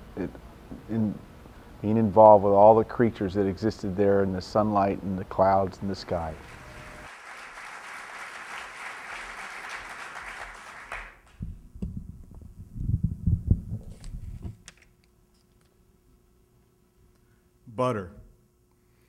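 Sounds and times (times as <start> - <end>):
audience applause: 6.3 - 11.4
microphone handling thumps: 11.4 - 14.6.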